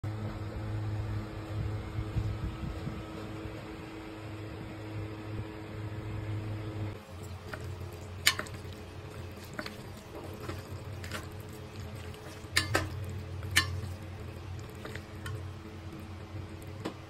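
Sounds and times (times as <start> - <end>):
steady low hum: 0.1 - 17.0
wet squelching of noodles: 7.0 - 16.8
utensils tapping a steel bowl: 7.4 - 15.5.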